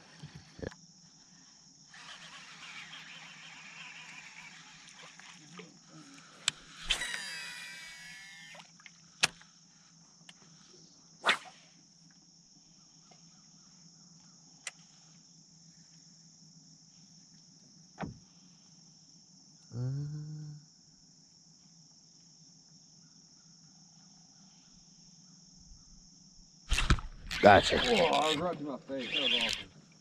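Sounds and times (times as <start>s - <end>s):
insect buzz: 0.0s - 30.0s
fishing reel brake whine: 1.9s - 8.8s, 26.7s - 29.7s
fishing reel clicks: 6.4s - 8.7s, 26.7s - 29.7s.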